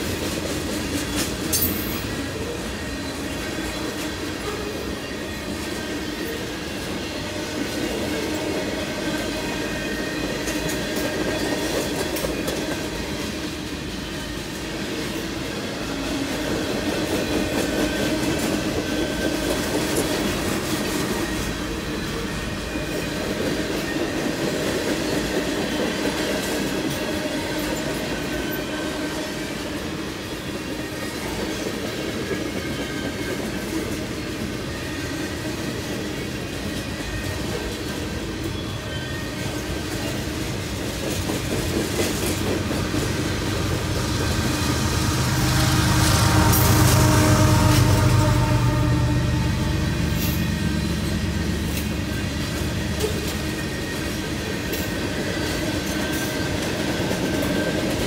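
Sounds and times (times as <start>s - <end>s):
train wheels rumbling on rails: 0.0s - 58.0s
faint high wheel squeal: 26.9s - 40.5s, 43.1s - 56.8s.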